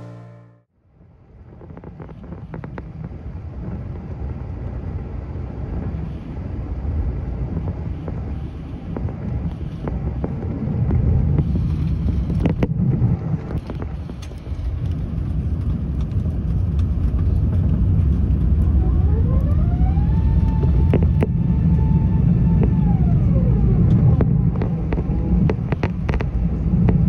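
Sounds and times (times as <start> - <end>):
aircraft cabin rumble: 0.0 - 27.0
sharp clicks and rattles: 8.9 - 18.8, 23.8 - 27.0.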